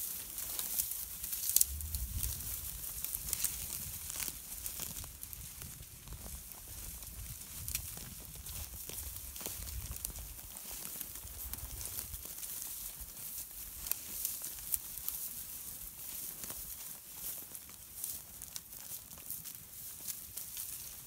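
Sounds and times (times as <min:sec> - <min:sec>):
footsteps crunching on straw: 0:00.0 - 0:21.0
wind rumbling on microphone: 0:01.3 - 0:10.4.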